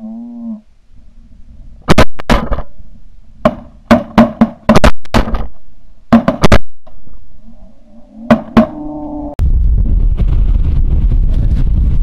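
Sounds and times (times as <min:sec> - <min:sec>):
shotgun blasts: 0:01.9 - 0:02.7.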